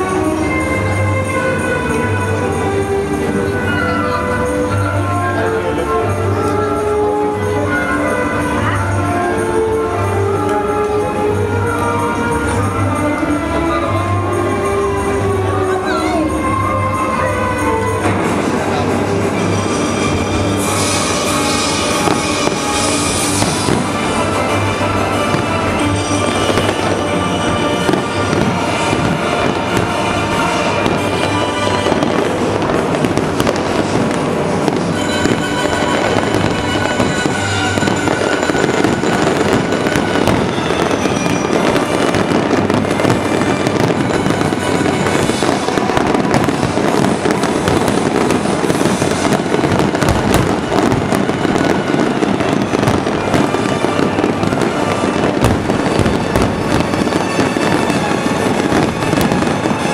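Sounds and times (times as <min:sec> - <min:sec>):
fireworks crackling and popping: 0:00.0 - 0:59.9
loud music with sustained tones: 0:00.0 - 0:59.9
firework shells bursting: 0:19.3 - 0:59.9.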